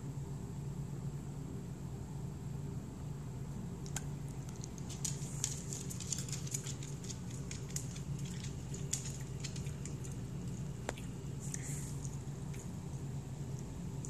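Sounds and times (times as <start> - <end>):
dog claws ticking on floor: 3.9 - 11.0
dog chewing a treat: 4.0 - 12.8.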